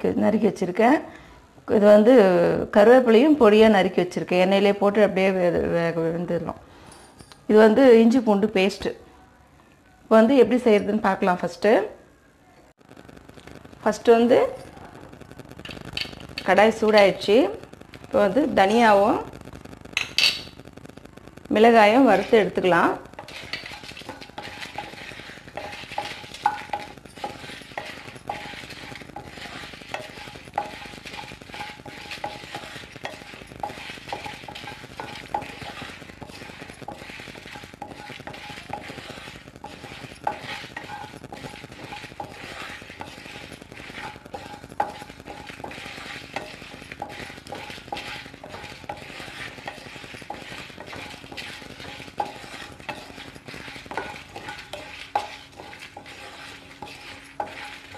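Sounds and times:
seeds scraping across pan: 13.2 - 20.8, 21.5 - 57.9
spatula knocking on pan: 23.1 - 57.9.

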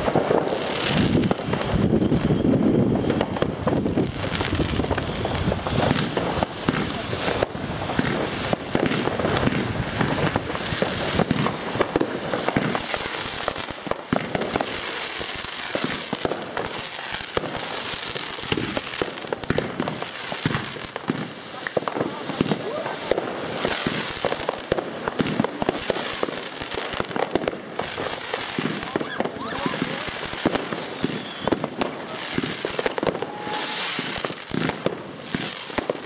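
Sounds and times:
fireworks crackling and popping: 0.0 - 36.0
hissing firework fountains: 0.0 - 36.0.

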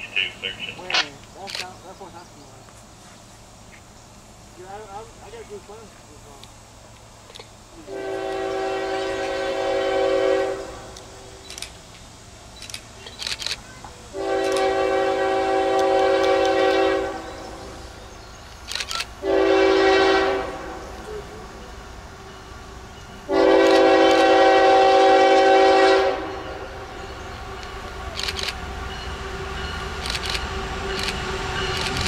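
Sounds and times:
locomotive air horn blasts: 7.8 - 11.0, 14.1 - 17.6, 19.2 - 20.9, 23.3 - 27.0.

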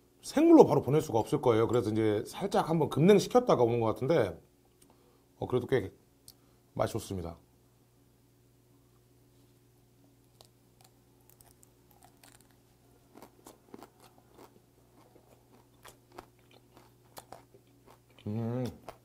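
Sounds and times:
chewing crunchy fish bones: 10.3 - 19.0.

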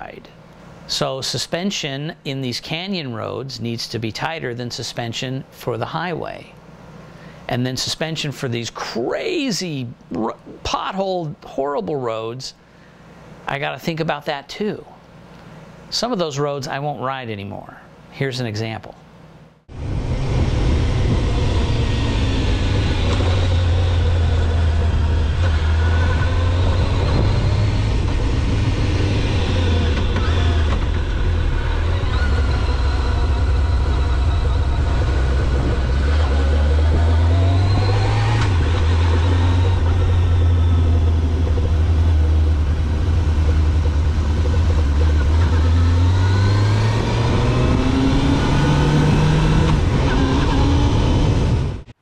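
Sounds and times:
motorcycle engine running: 19.7 - 49.7
wind and road noise: 19.7 - 51.9.

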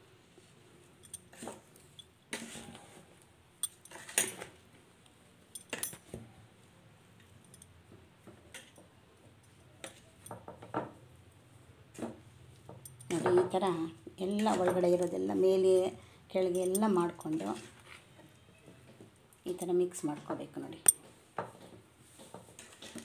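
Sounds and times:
food mixed in steel bowl: 1.3 - 3.1, 13.0 - 18.2.

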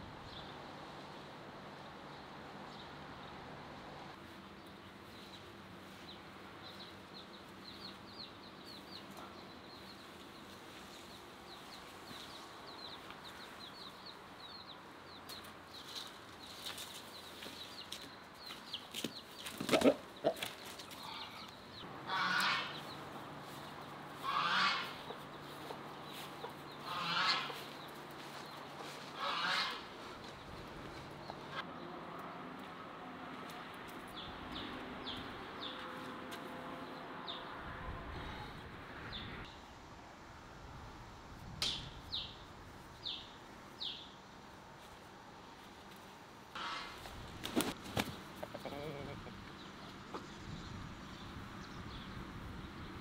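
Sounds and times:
wings flapping and knocks: 47.0 - 48.2.

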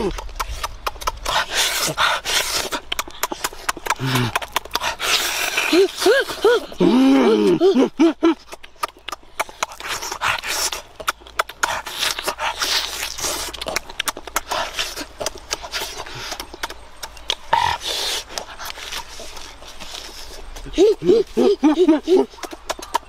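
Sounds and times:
person humming mmm: 0.0 - 8.6, 20.6 - 22.5
chewing and lip-smacking: 0.0 - 23.0.

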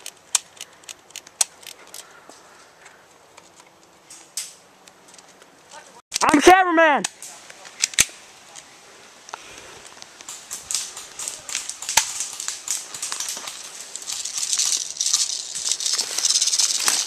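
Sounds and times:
scattered clicks: 0.0 - 2.1, 10.0 - 17.0
rustling of dry leaves: 0.0 - 6.4, 7.1 - 17.0.

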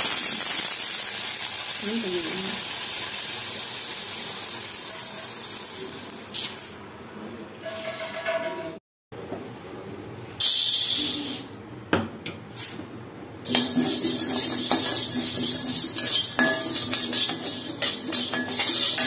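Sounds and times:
spatula stirring dry grains in pan: 13.5 - 19.0.

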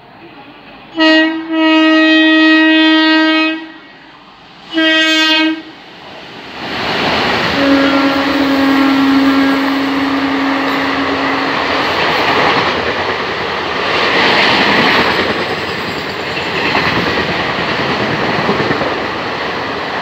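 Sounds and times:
train rushing past: 0.0 - 20.0
locomotive horn blasts: 0.9 - 3.8, 4.7 - 5.7, 7.5 - 11.6.

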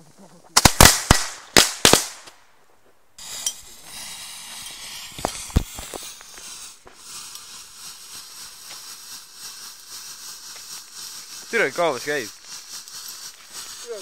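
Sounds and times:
firework hissing: 3.2 - 14.0
firework pops: 3.9 - 7.1.

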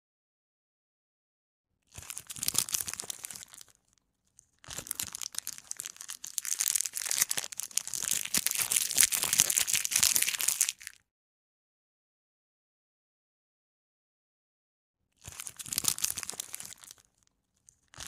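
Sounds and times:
plastic packaging crinkling: 1.9 - 11.0, 15.2 - 18.0.

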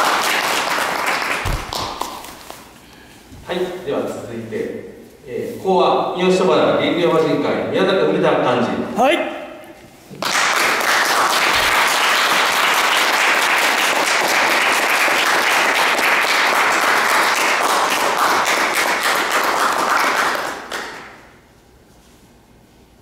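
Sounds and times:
audience applause: 0.0 - 2.6, 10.2 - 21.0.

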